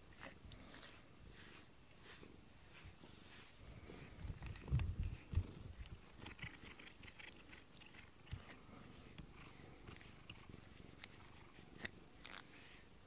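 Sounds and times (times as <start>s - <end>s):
hand rustling on fur: 0.2s - 5.7s
cat purring: 3.8s - 12.8s.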